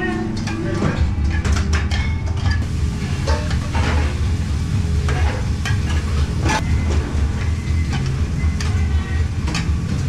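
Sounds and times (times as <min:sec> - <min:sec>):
low kitchen hum: 0:00.0 - 0:10.0
metal tongs scraping in a pan: 0:05.0 - 0:06.6.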